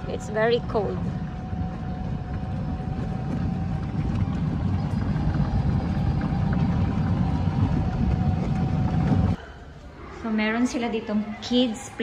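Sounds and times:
electric golf cart rumble: 0:00.0 - 0:09.4.

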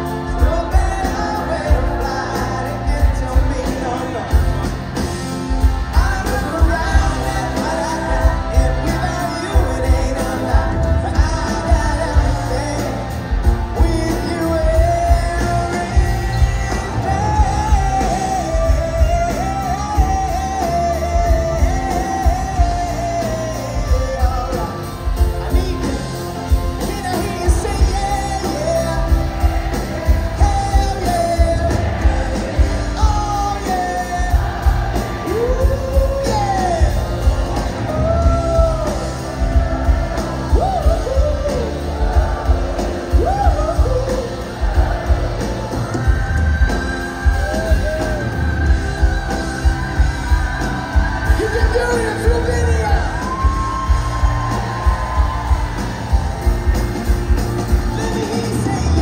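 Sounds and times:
drum beat: 0:00.0 - 0:59.0
electric guitars: 0:00.0 - 0:59.0
person singing: 0:00.0 - 0:59.0
pop-rock band playing: 0:00.0 - 0:59.0.

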